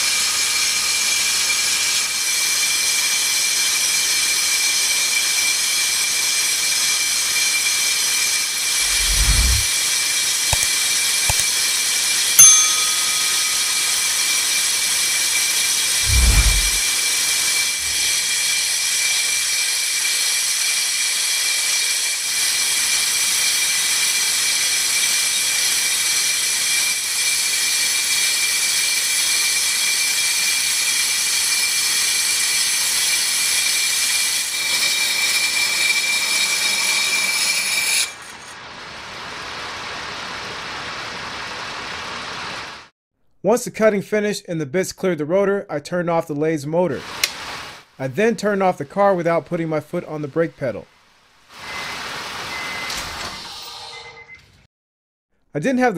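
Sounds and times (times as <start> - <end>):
machine hum: 8.8 - 9.7, 16.0 - 16.8.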